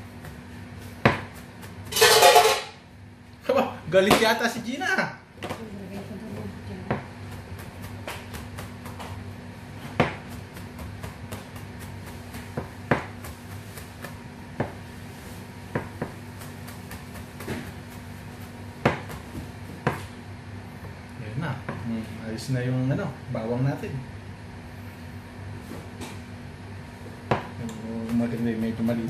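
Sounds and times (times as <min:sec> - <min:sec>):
knife chopping on a board: 0:00.0 - 0:02.2, 0:06.8 - 0:15.0, 0:15.6 - 0:20.2, 0:27.2 - 0:29.0.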